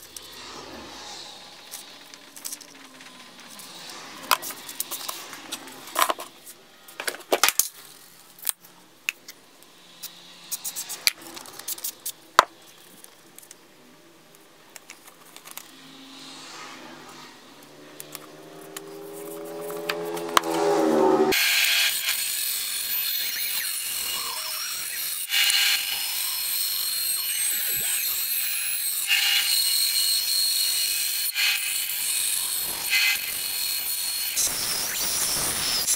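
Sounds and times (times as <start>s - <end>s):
bandsaw motor hum: 15.6s - 35.9s.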